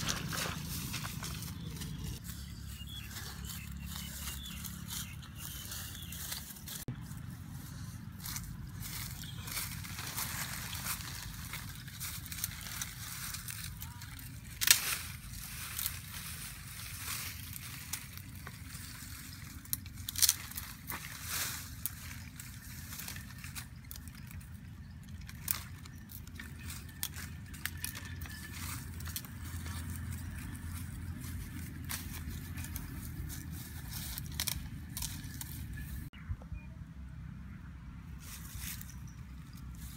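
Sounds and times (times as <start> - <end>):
leaves rustling: 0.0 - 36.1, 38.2 - 39.9
tree branches cracking: 8.9 - 33.1, 34.0 - 35.6.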